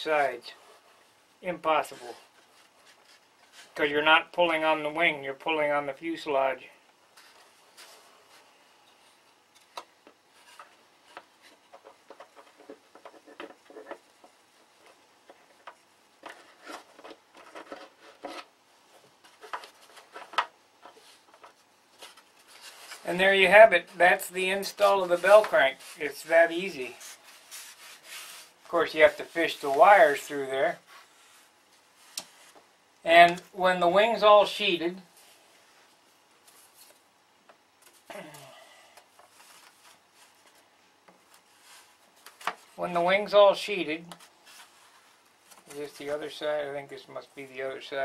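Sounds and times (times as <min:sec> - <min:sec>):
balsa sheet rubbing and rustling: 0:00.0 - 0:03.9, 0:07.1 - 0:09.3, 0:19.1 - 0:32.8, 0:39.2 - 0:43.6, 0:44.2 - 0:47.5
small scrapes and clicks: 0:07.2 - 0:18.5.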